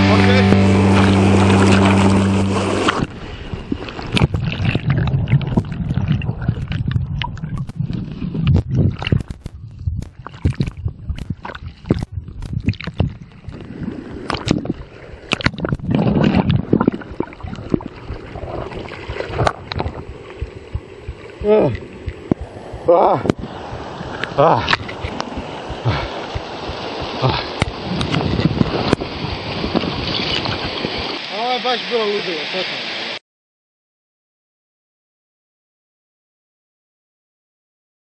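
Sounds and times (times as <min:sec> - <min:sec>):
rock music: 0:00.0 - 0:02.7
rushing gurgling creek water: 0:00.0 - 0:33.2
knocks and splashes against kayak: 0:00.1 - 0:31.4.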